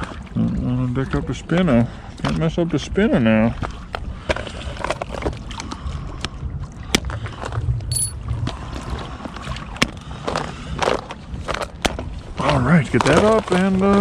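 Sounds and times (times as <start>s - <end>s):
waves lapping at wall: 0.0s - 14.0s
wind rumbling on microphone: 2.8s - 14.0s.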